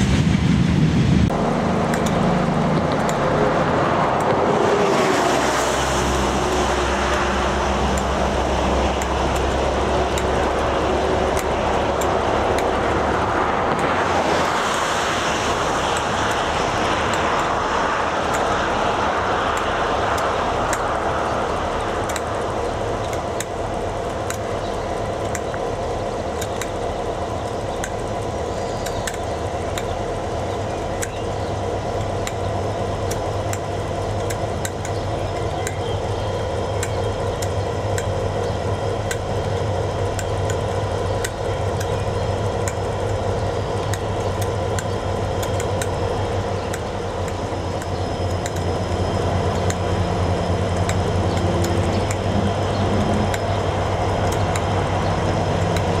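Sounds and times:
diesel locomotive rolling closer: 0.0 - 56.0
diesel locomotives idling: 0.0 - 56.0
light clicks: 21.8 - 22.4, 27.7 - 36.0.

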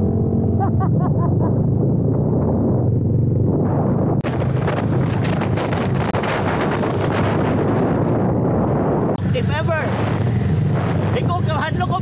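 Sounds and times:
motorcycle engine running: 0.0 - 8.4, 9.2 - 12.0
wind noise on microphone: 1.3 - 12.0.

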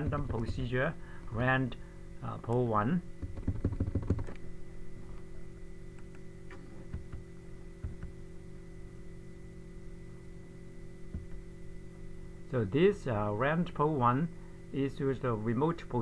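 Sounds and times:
steady electrical hum: 0.0 - 16.0
computer keyboard keys clicking: 3.2 - 4.4.

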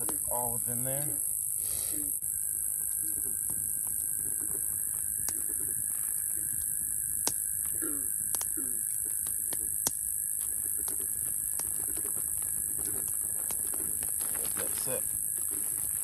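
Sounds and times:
crickets trilling: 0.0 - 16.0
faint steady tone: 0.0 - 16.0
sharp clicks: 7.2 - 12.1.

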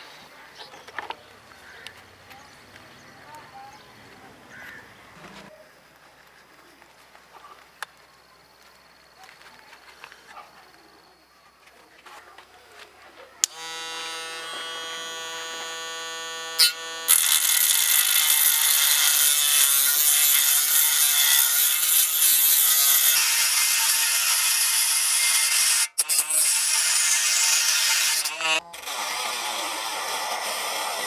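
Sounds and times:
rotary tool motor whining: 13.4 - 23.0, 23.6 - 31.0
cutting disc grinding steel: 13.4 - 31.0.

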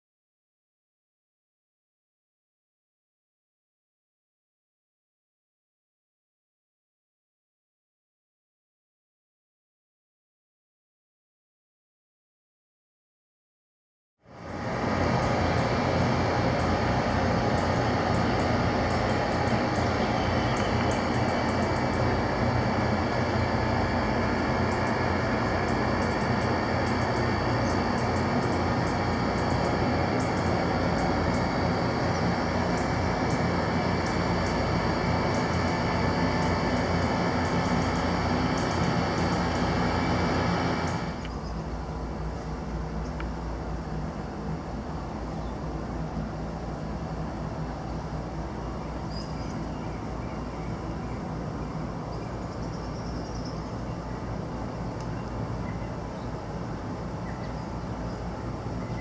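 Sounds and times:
faint bird chirps: 19.7 - 22.0, 48.6 - 54.3, 55.1 - 56.3, 57.2 - 58.2, 58.8 - 59.0.

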